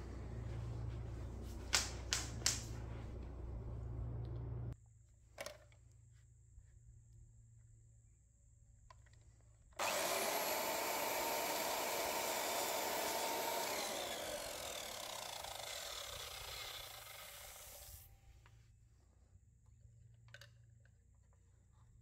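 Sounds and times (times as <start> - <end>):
mitre saw cutting wood: 9.8 - 18.0.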